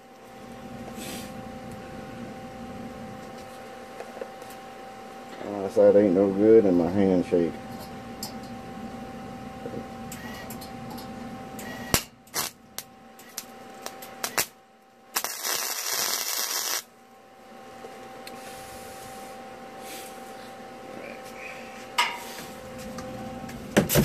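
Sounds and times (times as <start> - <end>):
welder arc crackling: 11.6 - 17.0
weld bead sizzling: 15.2 - 16.9.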